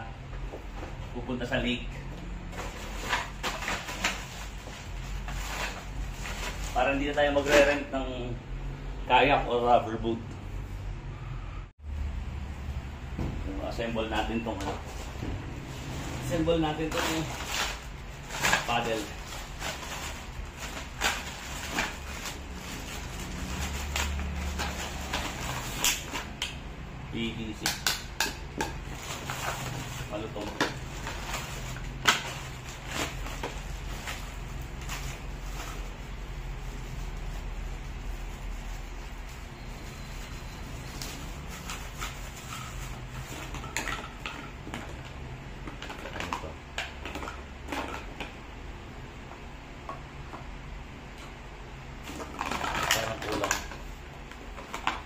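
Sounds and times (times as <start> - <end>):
plastic bag crinkling: 15.7 - 26.4, 52.2 - 53.7.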